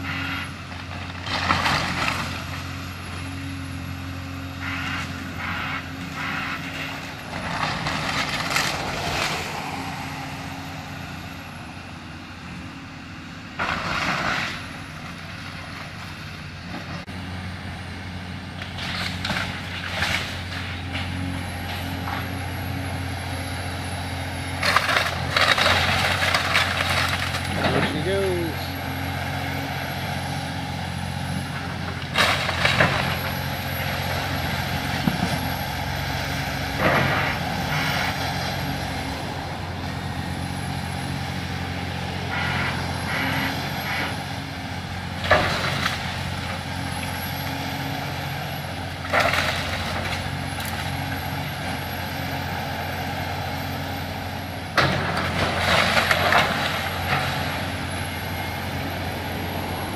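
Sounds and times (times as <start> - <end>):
excavator diesel engine running: 0.0 - 59.9
crashes of breaking wood: 24.6 - 28.0, 32.1 - 33.2, 49.0 - 50.8, 54.8 - 57.6.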